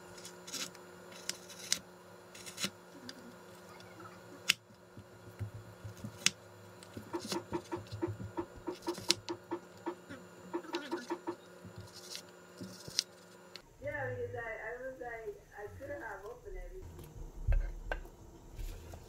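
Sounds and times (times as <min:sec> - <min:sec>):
knife chopping on cutting board: 0:07.0 - 0:11.9.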